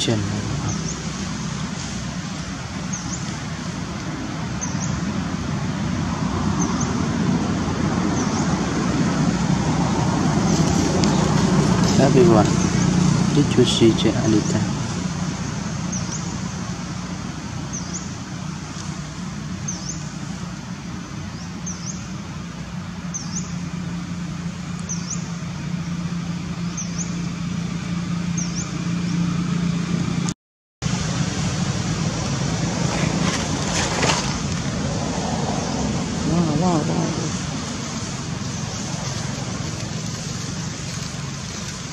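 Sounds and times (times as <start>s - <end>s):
bird chirping: 0.0s - 1.2s, 2.4s - 3.4s, 4.6s - 5.1s, 8.1s - 8.5s, 15.4s - 16.6s, 17.6s - 18.2s, 19.6s - 20.1s, 21.3s - 22.2s, 23.0s - 23.6s, 24.8s - 26.0s, 26.6s - 27.5s, 28.3s - 29.3s
rustles: 0.0s - 5.7s, 8.2s - 29.5s, 30.9s - 41.9s.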